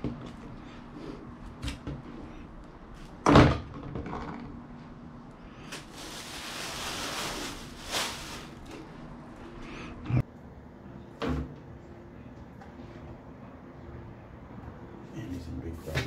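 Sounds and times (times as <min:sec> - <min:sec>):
plastic bag rustling and crinkling: 0:05.7 - 0:09.1.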